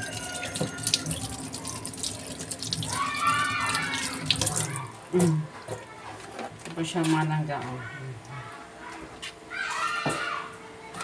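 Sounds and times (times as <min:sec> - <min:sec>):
tap water running into sink: 0:00.0 - 0:04.9.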